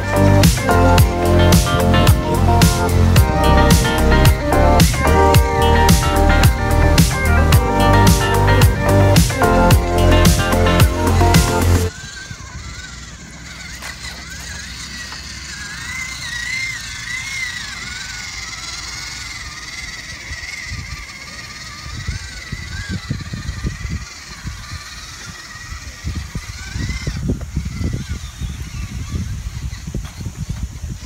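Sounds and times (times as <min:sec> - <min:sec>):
low thumps and rumbles: 0:00.0 - 0:11.9
toy truck electric motor whining: 0:00.0 - 0:31.0.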